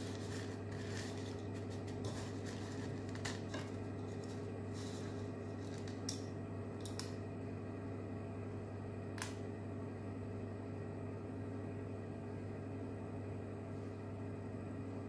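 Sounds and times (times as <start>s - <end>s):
almonds rustling in ceramic bowl: 0.0s - 5.9s
steady low hum: 0.0s - 15.0s.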